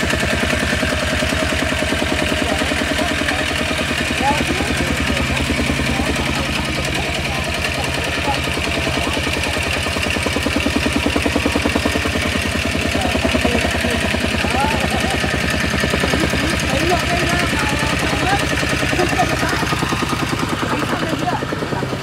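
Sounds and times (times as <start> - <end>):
tamping rammer engine running: 0.0 - 22.0.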